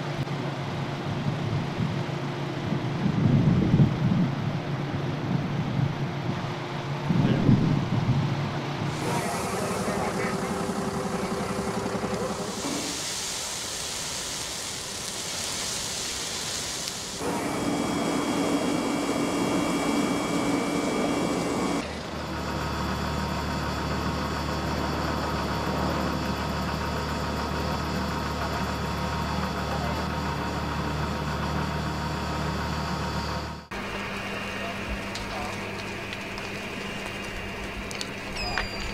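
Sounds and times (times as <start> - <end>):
engine droning: 4.5 - 13.8, 14.4 - 38.9
steady hissing noise: 8.8 - 21.8.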